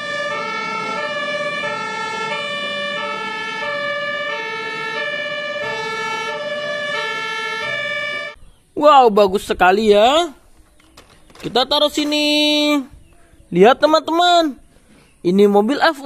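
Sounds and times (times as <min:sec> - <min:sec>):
two-tone emergency siren: 0:00.0 - 0:08.4.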